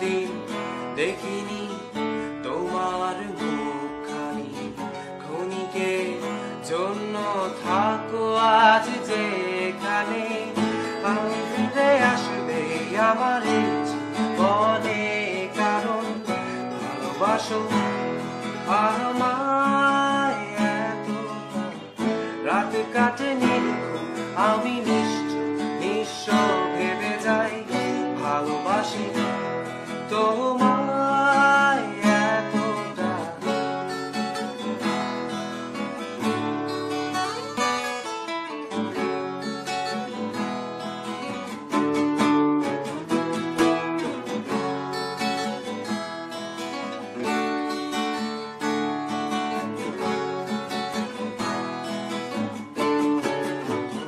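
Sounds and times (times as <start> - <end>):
strummed acoustic guitar: 0.0 - 54.0.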